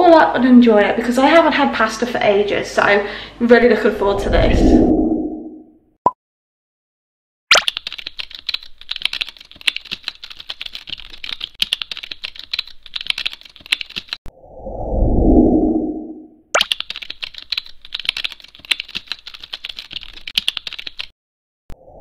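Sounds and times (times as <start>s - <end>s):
low whooshing swell: 4.0s - 5.7s, 14.4s - 16.4s.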